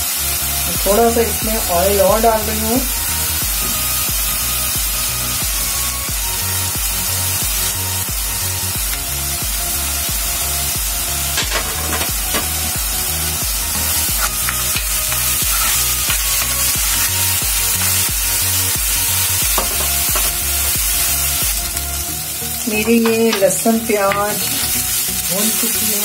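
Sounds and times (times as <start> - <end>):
background music with steady beat: 0.0 - 26.0
paste sizzling in hot oil: 0.0 - 26.0
spoon scraping pan: 11.4 - 12.8, 13.8 - 18.4.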